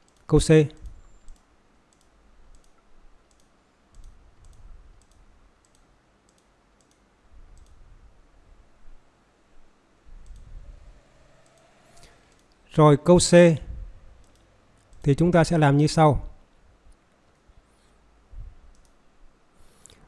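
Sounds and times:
mouse and keyboard clicks: 0.0s - 7.8s, 10.2s - 10.6s, 14.2s - 15.1s.

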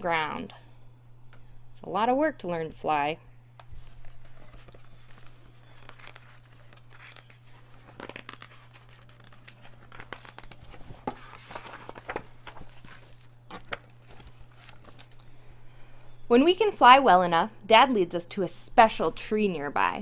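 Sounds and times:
steady low hum: 0.0s - 20.0s
paper pages rustling: 3.6s - 15.3s.

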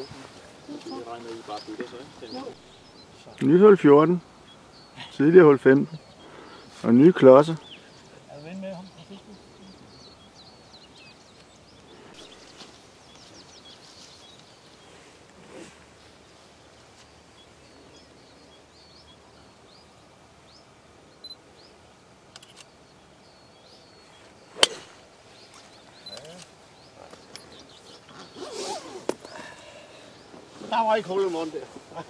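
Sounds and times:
birds chirping: 0.0s - 32.0s
golf club striking ball: 24.6s - 25.0s.

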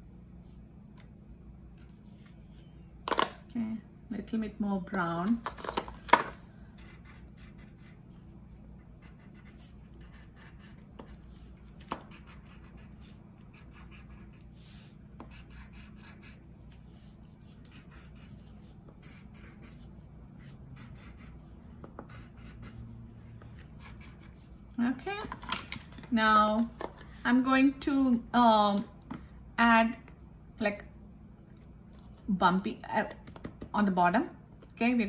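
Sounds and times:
faint steady low hum: 0.0s - 35.0s
wax crayon scratching on paper: 9.0s - 16.5s, 17.4s - 21.4s, 22.0s - 22.8s.

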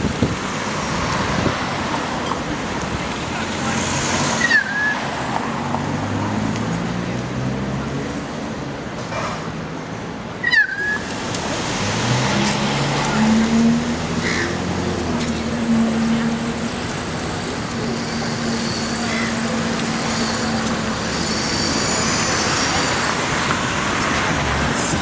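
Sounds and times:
traffic-like rumble: 0.0s - 25.0s
diesel engine hum: 11.0s - 25.0s.

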